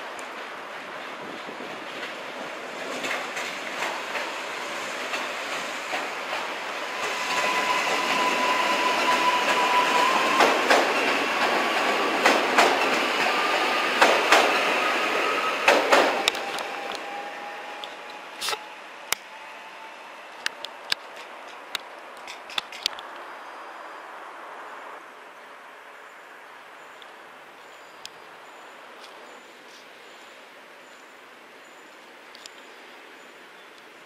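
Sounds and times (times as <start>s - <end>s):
electric train passing: 0.0s - 21.0s
wheels clicking over rail joints: 0.1s - 6.7s, 9.0s - 14.7s, 15.6s - 17.1s
thin high whine: 6.8s - 10.5s.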